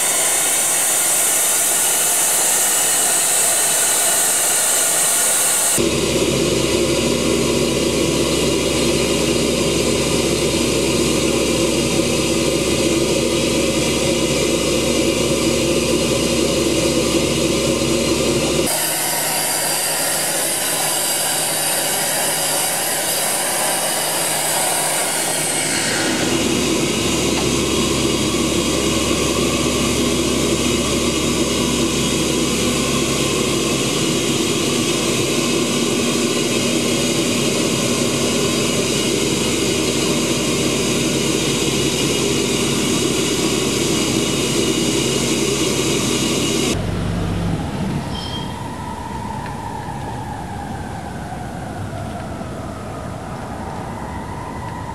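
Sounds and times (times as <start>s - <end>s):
sandblaster hissing: 0.0s - 6.4s, 10.2s - 46.8s
machine drone: 0.0s - 54.9s.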